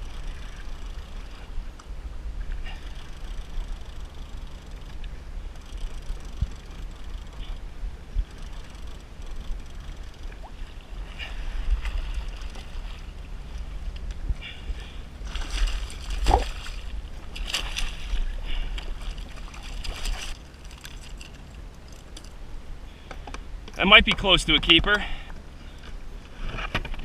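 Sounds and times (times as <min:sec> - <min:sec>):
wind rumble on microphone: 0:00.0 - 0:27.0
water splashing: 0:08.4 - 0:13.8, 0:14.7 - 0:22.2.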